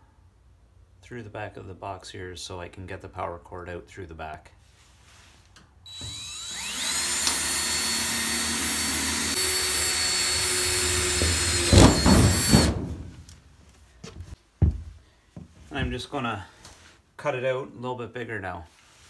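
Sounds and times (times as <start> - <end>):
cordless drill boring through steel: 5.9 - 12.7.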